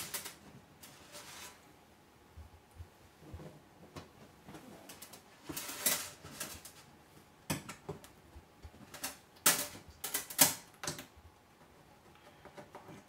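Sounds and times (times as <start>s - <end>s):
rivets clicking and scraping: 0.0s - 1.6s, 4.9s - 6.9s, 8.6s - 13.0s.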